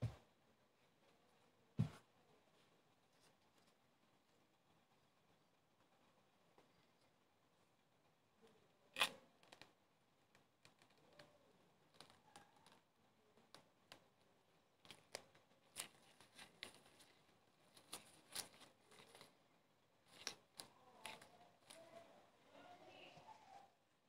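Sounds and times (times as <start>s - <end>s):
bread roll crackling and rustling: 8.9s - 23.8s.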